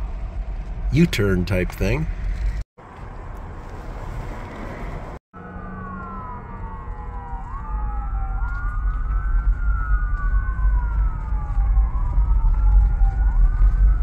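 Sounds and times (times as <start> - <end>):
road traffic rumble: 0.0 - 14.0
emergency siren wailing: 5.4 - 14.0.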